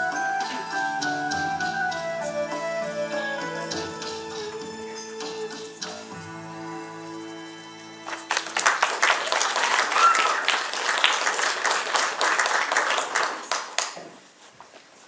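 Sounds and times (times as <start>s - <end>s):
held chord of backing music: 0.0s - 9.5s
audience clapping: 8.0s - 14.3s.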